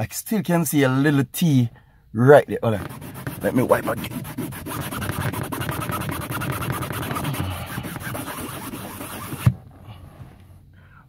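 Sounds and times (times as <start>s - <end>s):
cloth rubbing on fabric: 2.8s - 9.5s.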